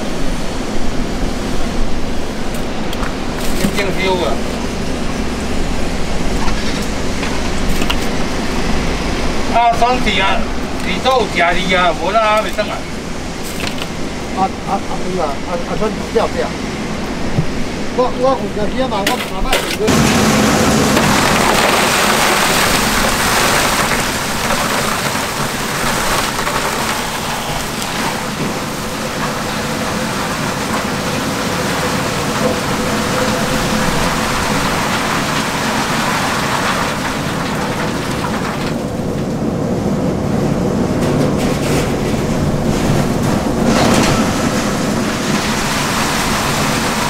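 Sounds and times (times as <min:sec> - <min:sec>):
low machine hum: 0:00.0 - 0:47.0
crushed ice pouring into bins: 0:19.9 - 0:39.1, 0:41.6 - 0:47.0.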